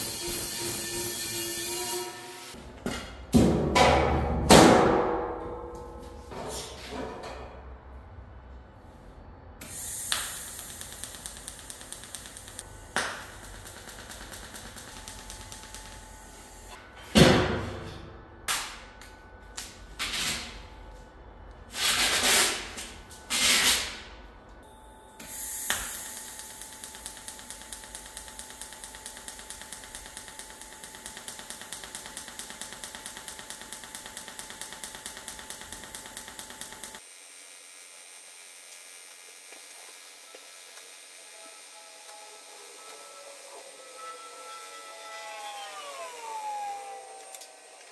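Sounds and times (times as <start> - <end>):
welding arc hissing and ticking: 0.0 - 2.6, 9.6 - 16.8, 25.2 - 37.0
welding arc loud short bursts: 9.6 - 16.8, 25.2 - 37.0.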